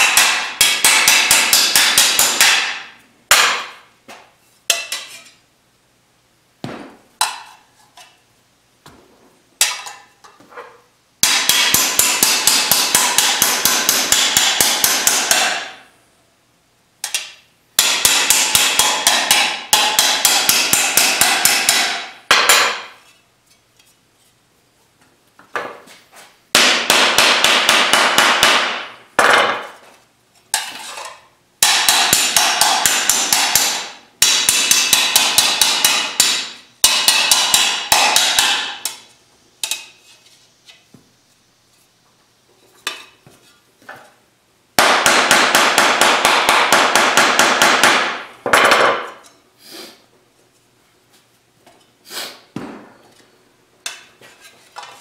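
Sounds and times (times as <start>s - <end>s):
hammer striking steel panel: 0.0s - 3.8s, 11.2s - 15.9s, 17.0s - 23.0s, 26.6s - 29.8s, 31.6s - 39.0s, 44.8s - 49.2s.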